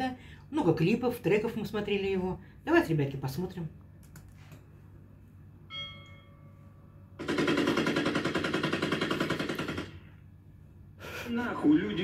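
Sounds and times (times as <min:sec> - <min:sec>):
automatic gunfire: 0:07.2 - 0:10.0.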